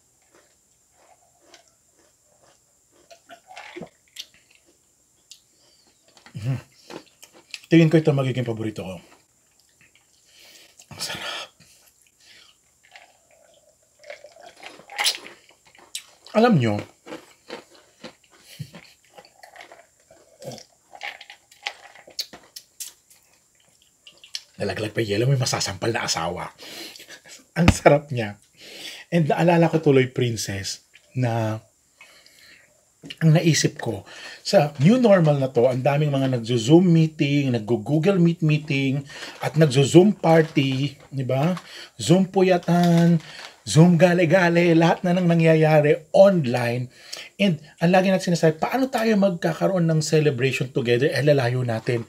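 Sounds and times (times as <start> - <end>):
person sipping and swallowing: 9.6 - 16.1, 17.2 - 22.3
sipping and mouth sounds: 12.3 - 16.2
ice cubes rattling in plastic cup: 20.9 - 22.5.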